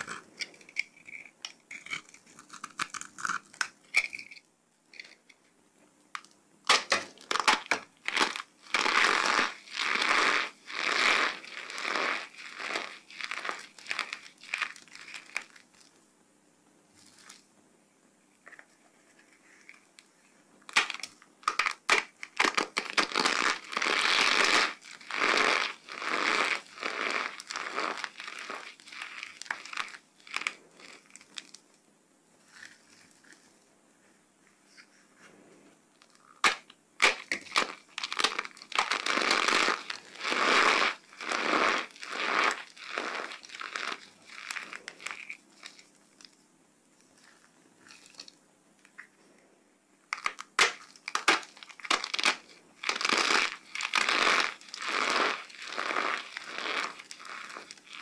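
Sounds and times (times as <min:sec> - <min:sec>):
hands crushing dry soap: 0:00.0 - 0:04.4, 0:06.1 - 0:15.8, 0:20.7 - 0:31.6, 0:36.0 - 0:46.4, 0:50.1 - 0:58.0.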